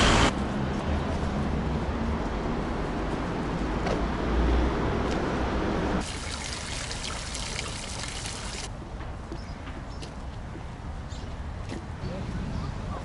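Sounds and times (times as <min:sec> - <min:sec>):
street traffic rumble: 0:00.0 - 0:13.0
fountain water splashing: 0:06.0 - 0:08.7.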